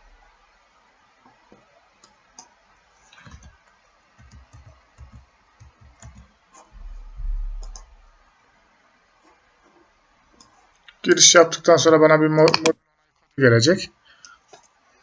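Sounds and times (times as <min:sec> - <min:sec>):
keyboard and mouse clicks: 0:03.2 - 0:03.6, 0:04.2 - 0:06.3, 0:07.6 - 0:07.9, 0:12.4 - 0:12.8
dull low knocks: 0:06.8 - 0:08.2
low rumble: 0:06.8 - 0:08.2.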